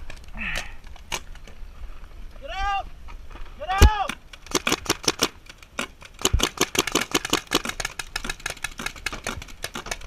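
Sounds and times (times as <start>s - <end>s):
paintball markers firing: 3.8s - 10.0s.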